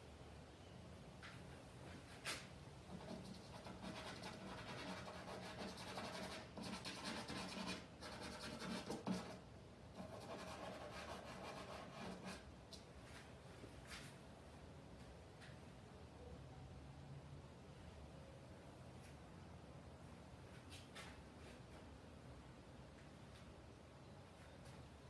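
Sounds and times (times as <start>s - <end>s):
charcoal scratching on canvas: 2.9s - 9.4s.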